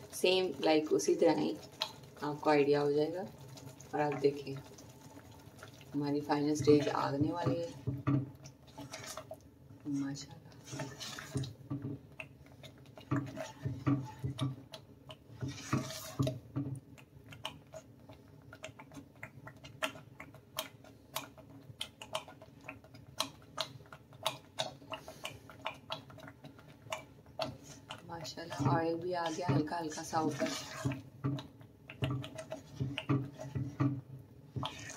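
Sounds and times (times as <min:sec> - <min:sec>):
thick mixture bubbling and popping: 0:00.0 - 0:34.9
spoon scraping a pan: 0:06.5 - 0:09.4, 0:10.5 - 0:11.9, 0:12.6 - 0:14.6, 0:15.3 - 0:16.5, 0:27.4 - 0:34.0, 0:34.6 - 0:34.9.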